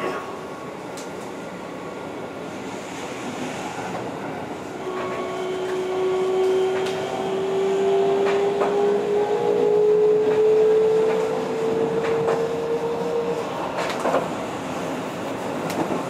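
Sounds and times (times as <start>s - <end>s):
rail joint clicks: 0.9s - 1.4s, 4.9s - 9.1s, 10.0s - 16.0s
train motor whine: 4.8s - 13.9s.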